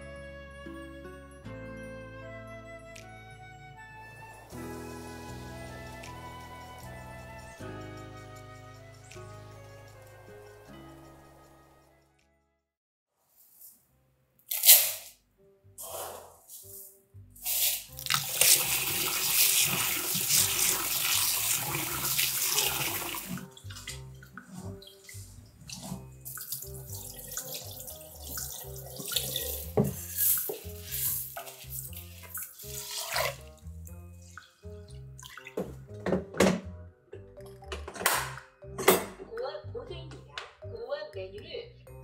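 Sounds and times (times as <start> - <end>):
soft background music: 0.0 - 12.6, 13.3 - 42.0
grains swished in water: 16.5 - 19.8, 24.8 - 33.5
water poured into sink: 17.4 - 33.6, 34.3 - 35.9
water sloshing: 18.0 - 33.6, 34.2 - 36.0
tap running into a bowl: 28.2 - 30.6.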